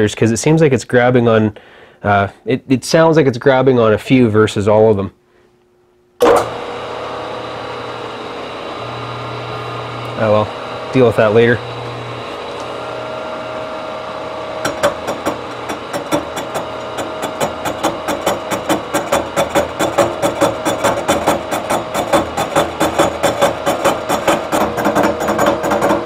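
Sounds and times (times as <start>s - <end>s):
milling machine humming: 6.2s - 26.0s
face mill cutting with fast ticking: 14.2s - 26.0s.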